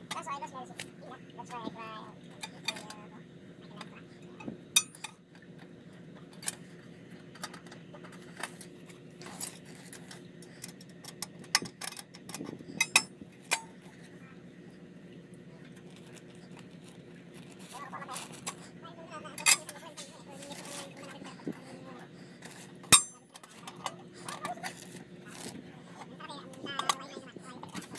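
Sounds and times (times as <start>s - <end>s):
faint steady hum: 0.0s - 27.9s
small tools clicking and clinking: 7.4s - 13.8s, 19.4s - 20.9s, 22.4s - 25.6s.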